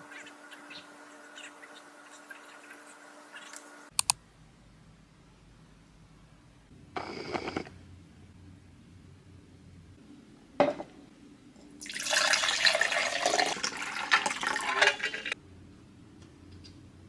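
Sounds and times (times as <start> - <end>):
sharp click: 3.9 - 4.2
drink pouring into glass: 11.8 - 15.4.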